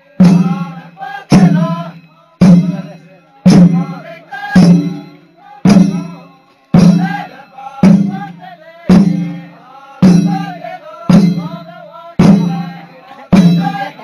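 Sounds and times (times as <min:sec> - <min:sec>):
group of voices singing: 0:00.0 - 0:14.0
drum beats ringing: 0:00.2 - 0:14.0.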